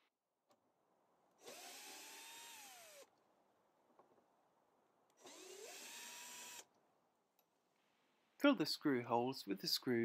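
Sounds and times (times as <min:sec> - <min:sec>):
cordless drill motor whine: 0:01.4 - 0:03.1, 0:05.2 - 0:06.6.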